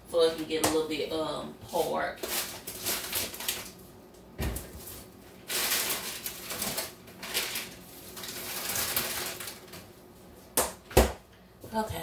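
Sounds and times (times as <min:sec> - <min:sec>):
kitchen rustling and clatter: 0:01.6 - 0:10.0.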